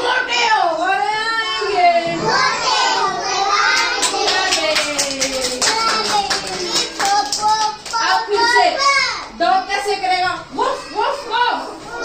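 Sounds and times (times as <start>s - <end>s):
children singing together: 2.0s - 4.6s
hand claps: 3.8s - 8.0s.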